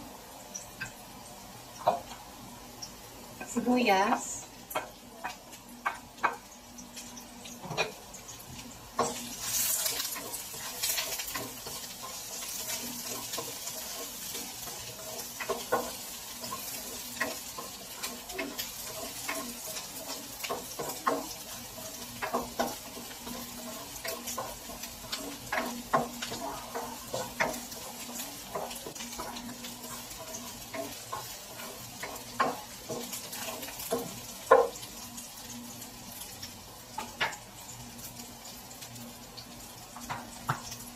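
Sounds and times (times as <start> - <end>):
aromatics sizzling in hot oil: 0.0 - 40.9
spatula scraping and tapping pan: 1.8 - 2.2, 4.7 - 8.0, 8.9 - 35.0, 37.0 - 37.4, 40.0 - 40.8.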